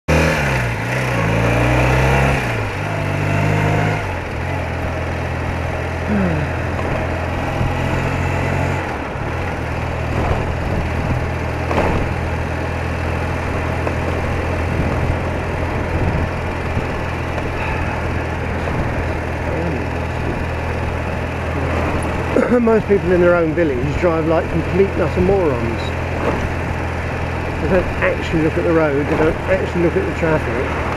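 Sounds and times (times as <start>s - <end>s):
motorcycle engine running: 0.1s - 30.9s
wind and road noise: 0.1s - 30.9s.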